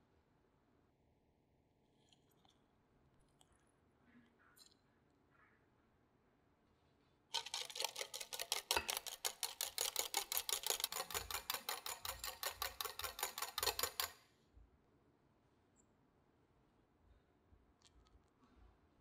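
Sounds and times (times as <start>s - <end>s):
whisk beating in glass bowl: 7.4s - 14.2s.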